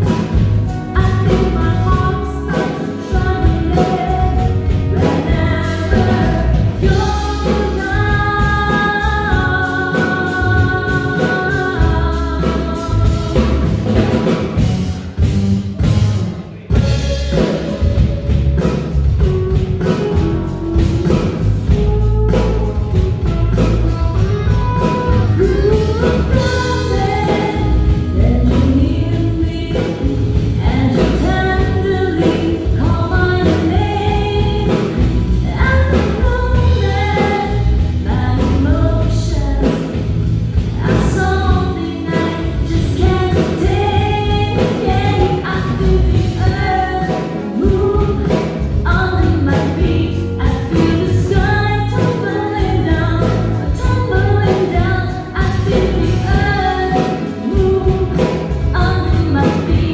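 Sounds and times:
woman singing: 0.0s - 14.8s, 16.7s - 59.9s
live pop band playing: 0.0s - 59.9s.

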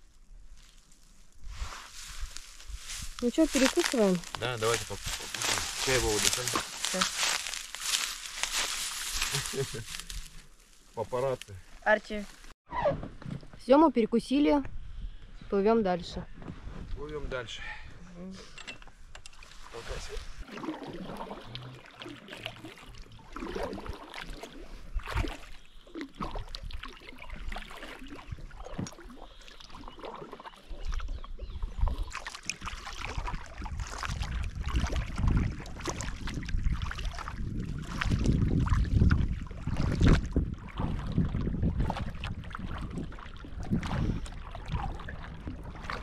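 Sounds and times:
oars splashing in water: 1.6s - 10.3s, 19.2s - 46.0s
wind buffeting microphone: 33.0s - 46.0s.

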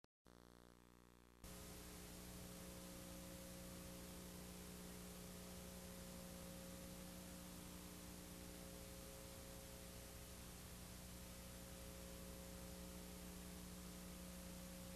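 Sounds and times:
faint electrical hum with hiss: 0.3s - 14.9s.

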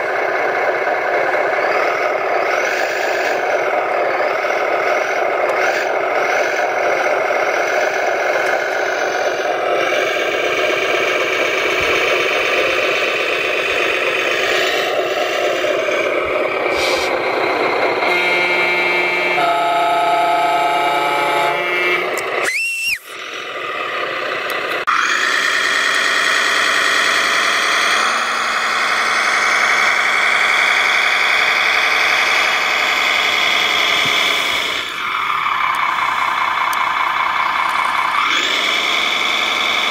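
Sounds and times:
motor and gear whine: 0.0s - 39.9s
rising squeal: 20.6s - 23.2s.

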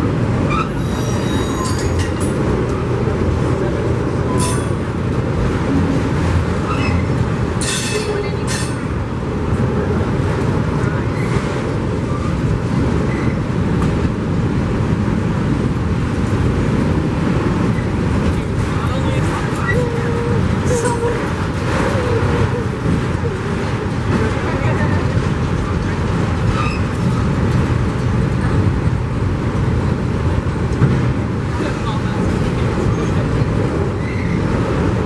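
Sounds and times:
train wheels rumbling on track: 0.0s - 35.0s
wheel squeals and clanks: 0.5s - 2.3s, 4.3s - 4.8s, 6.6s - 8.8s, 26.5s - 27.0s, 34.0s - 34.5s.

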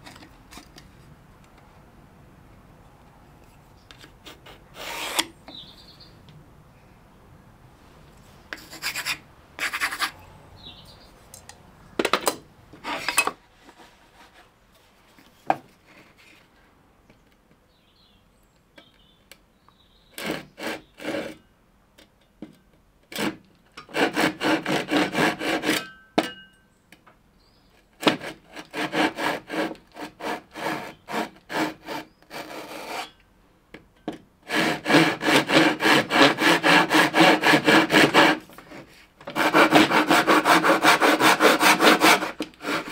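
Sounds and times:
hand saw cutting plywood: 4.2s - 5.3s, 20.2s - 21.4s, 23.1s - 26.0s, 28.0s - 33.2s, 34.4s - 42.9s.

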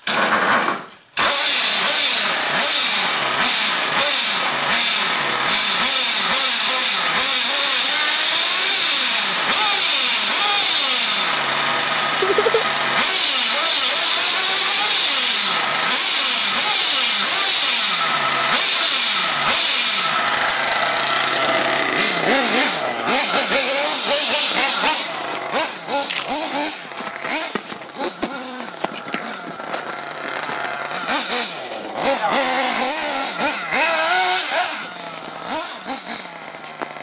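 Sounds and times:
small glow engine revving: 12.1s - 37.0s.

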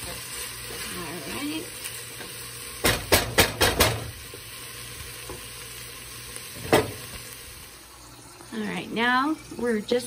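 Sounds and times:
food sizzling in a pot: 0.0s - 10.0s
spoon knocking against pot: 2.8s - 4.1s.

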